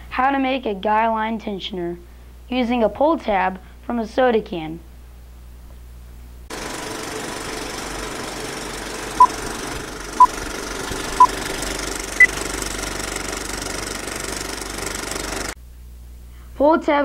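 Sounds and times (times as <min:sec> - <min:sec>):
film projector rattle with crackle: 0:06.5 - 0:15.6.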